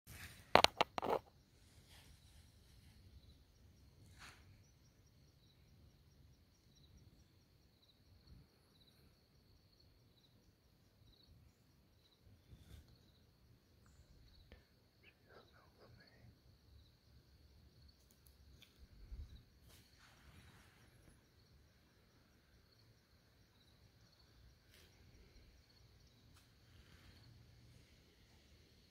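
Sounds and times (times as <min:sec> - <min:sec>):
soft clicks and rustles: 0:00.1 - 0:03.0
insect chirping: 0:00.2 - 0:28.9.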